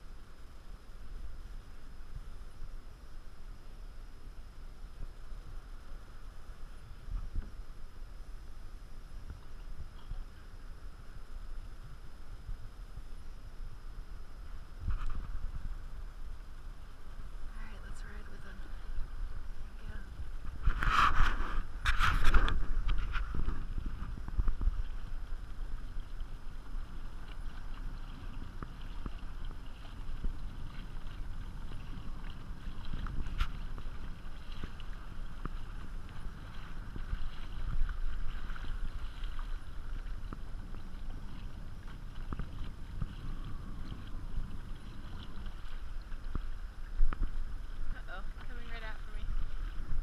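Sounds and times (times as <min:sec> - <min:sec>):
water lapping against kayak hull: 0:00.0 - 0:50.0
wind buffeting microphone: 0:14.2 - 0:50.0.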